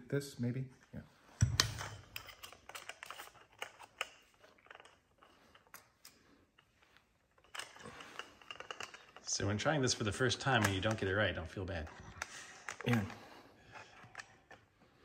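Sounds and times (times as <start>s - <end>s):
clicks of metal parts handled: 10.4s - 11.1s.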